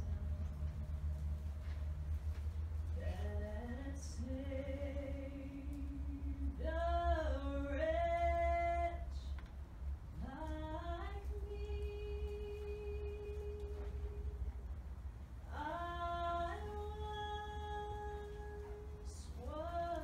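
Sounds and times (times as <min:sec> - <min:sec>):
low steady rumble: 0:00.0 - 0:20.0
woman singing a chant: 0:03.0 - 0:09.4, 0:10.2 - 0:14.5, 0:15.5 - 0:20.0.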